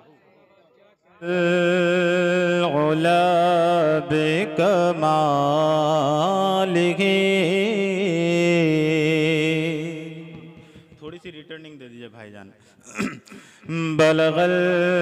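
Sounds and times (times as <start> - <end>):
man singing into microphone: 1.2 - 11.0, 12.9 - 15.0.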